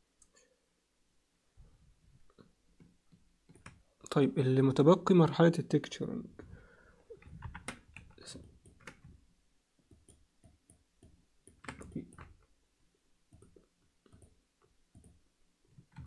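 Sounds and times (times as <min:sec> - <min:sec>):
keyboard and mouse clicks: 0:02.3 - 0:03.8, 0:07.1 - 0:09.2, 0:09.8 - 0:12.5, 0:13.3 - 0:16.0.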